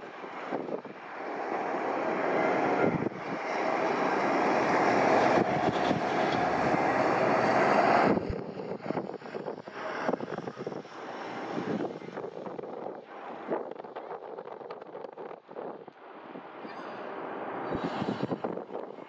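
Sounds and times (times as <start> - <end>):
jet engines roaring at takeoff: 0.0 - 13.9.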